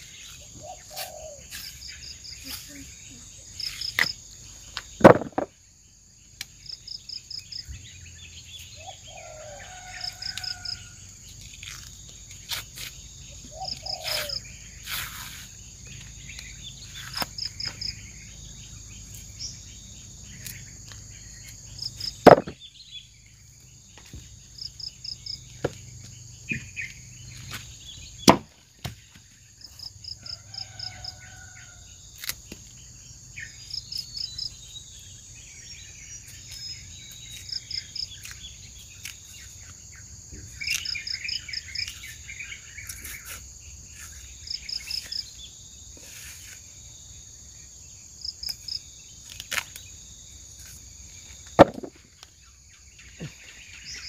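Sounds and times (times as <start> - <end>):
insect drone: 0.0 - 54.0
rapid insect chirps: 0.0 - 54.0
sharp knocks: 5.0 - 5.5, 22.2 - 22.6, 28.2 - 29.0, 51.6 - 52.0.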